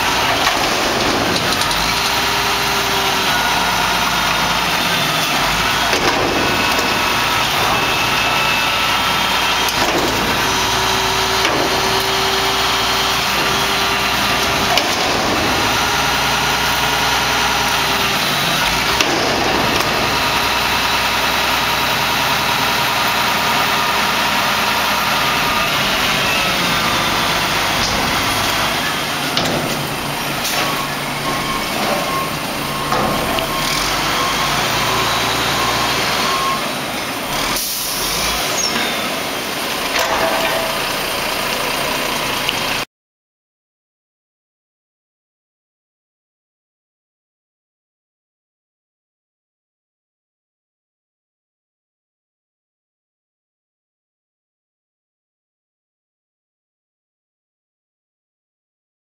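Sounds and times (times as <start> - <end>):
garbage truck diesel engine running: 0.0 - 42.8
hydraulic whine: 0.0 - 42.8
metal knocks: 27.7 - 34.2, 39.9 - 41.2.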